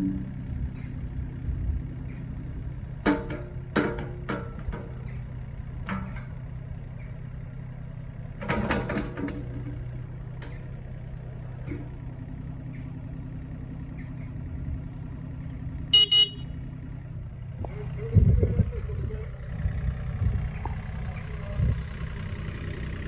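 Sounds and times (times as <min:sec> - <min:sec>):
diesel engine idling: 0:00.0 - 0:23.0
sharp clicks and knocks: 0:03.0 - 0:06.4.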